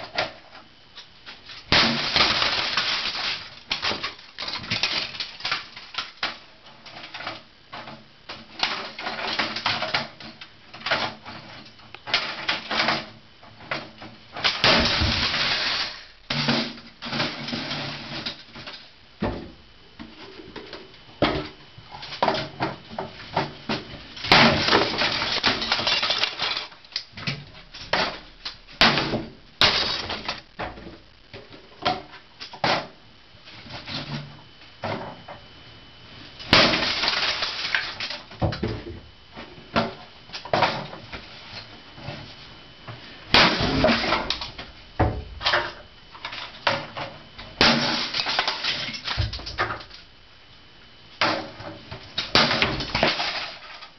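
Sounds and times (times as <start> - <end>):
plastic cracking and crunching: 1.0 - 7.5
hammer smashing plastic: 1.5 - 6.4, 13.8 - 18.4, 23.4 - 30.8, 36.4 - 38.8, 43.3 - 47.0, 47.6 - 50.0, 52.2 - 53.9.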